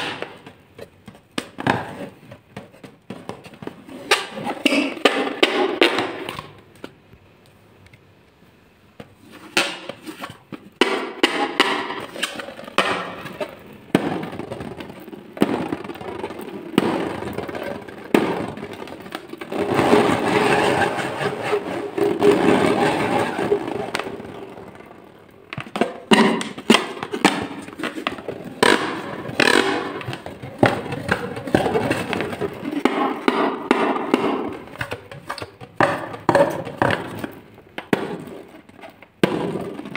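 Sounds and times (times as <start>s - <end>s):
rubbing and squeezing a balloon: 9.0s - 39.9s
fingers tapping a balloon: 25.6s - 39.9s.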